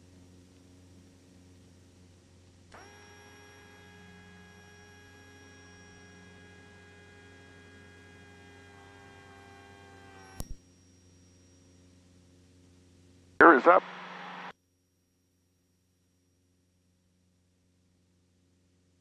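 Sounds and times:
hydraulic pump whine: 2.7s - 12.1s
sharp click: 10.4s - 10.6s.

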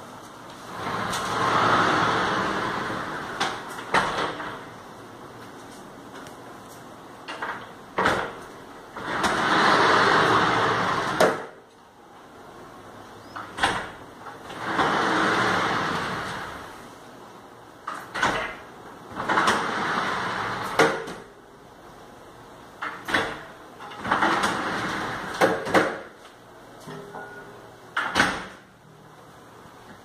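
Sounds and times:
glass panels sliding along track: 0.4s - 11.6s, 13.3s - 17.1s, 17.7s - 21.3s, 22.7s - 26.2s.

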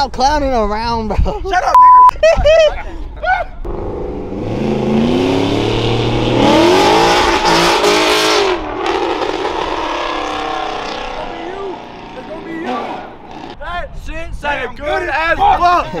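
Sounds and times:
car engine revving accelerating: 3.7s - 13.6s.

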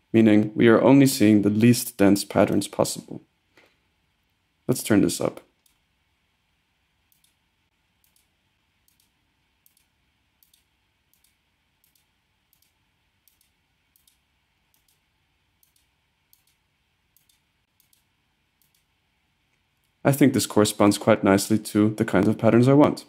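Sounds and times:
computer mouse clicks: 7.1s - 7.4s, 8.0s - 15.0s, 15.6s - 18.9s.

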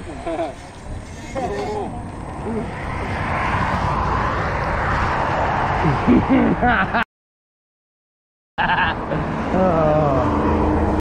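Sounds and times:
wind rushing over microphone: 0.7s - 7.0s.

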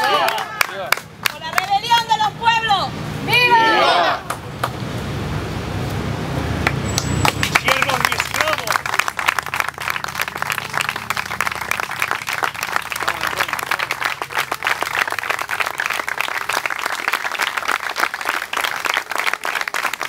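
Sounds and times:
crowd applauding: 0.0s - 2.1s, 6.6s - 20.0s.

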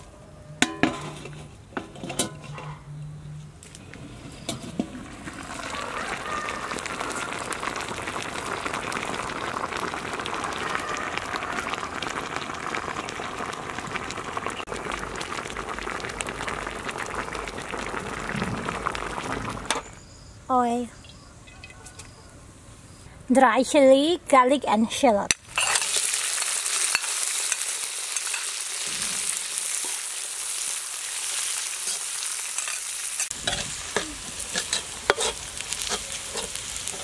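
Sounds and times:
metal lid clanking on wok: 0.6s - 2.8s
liquid bubbling boil: 3.9s - 20.0s.

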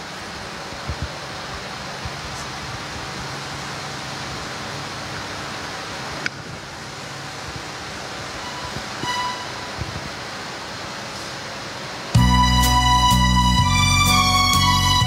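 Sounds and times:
steady rushing noise: 0.0s - 14.1s
low hum: 0.0s - 15.0s.

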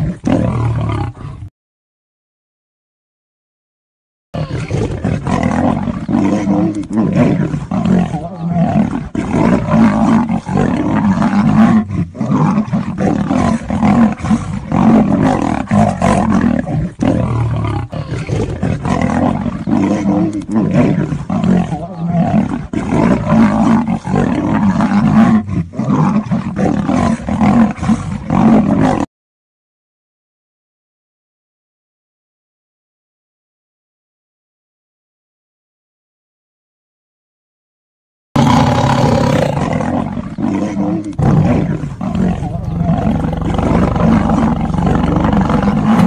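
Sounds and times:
lion and tiger roaring: 0.0s - 1.5s, 4.4s - 29.1s, 38.4s - 46.0s.

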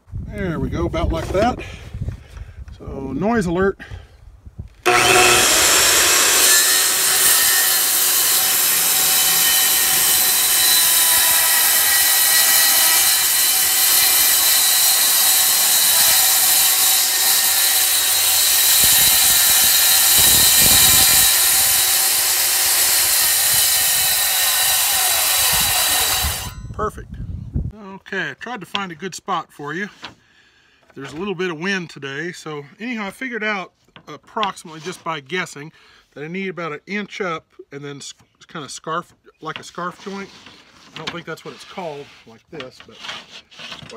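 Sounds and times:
circular saw cutting wood: 4.9s - 26.6s.

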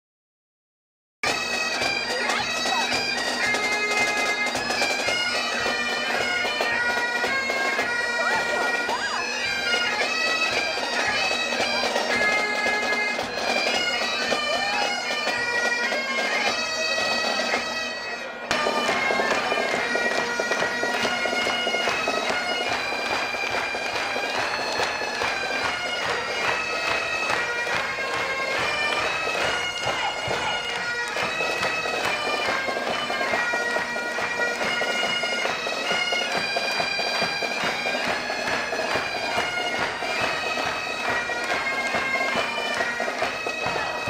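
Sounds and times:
bagpipe drone: 1.2s - 44.0s
bagpipes playing a tune: 1.2s - 44.0s.

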